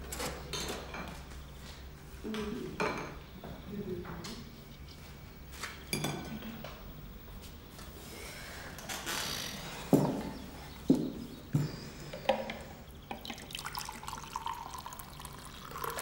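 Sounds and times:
dishes knocking on table: 0:09.9 - 0:10.3.

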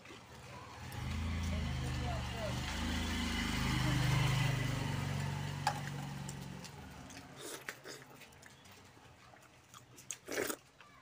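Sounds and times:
vehicle engine hum: 0:00.2 - 0:07.4.

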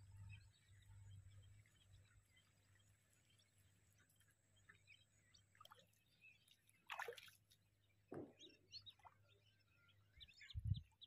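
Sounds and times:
faint bird chirps: 0:00.0 - 0:11.0
small splashes on water: 0:05.5 - 0:07.6.

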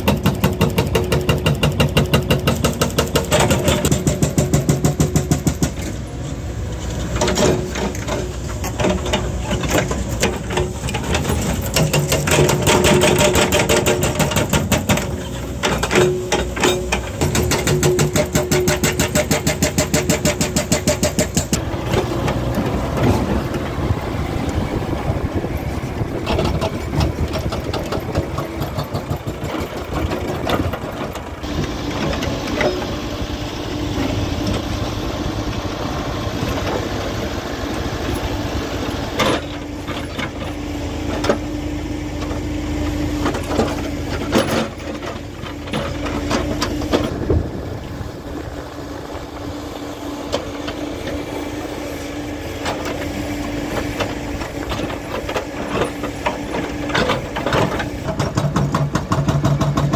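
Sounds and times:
hydraulic breaker hammering rock: 0:00.0 - 0:06.0, 0:07.2 - 0:23.3, 0:26.2 - 0:33.0, 0:50.2 - 0:59.9
diesel engine running: 0:00.0 - 0:59.9.

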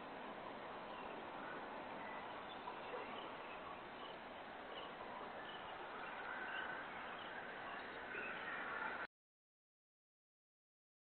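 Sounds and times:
bird chirps: 0:00.8 - 0:08.8.

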